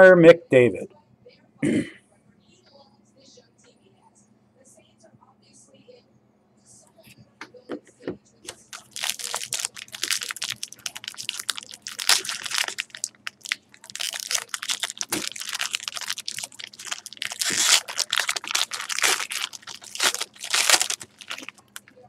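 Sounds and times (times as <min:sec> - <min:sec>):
foil wrapper crinkling: 0:08.5 - 0:22.0.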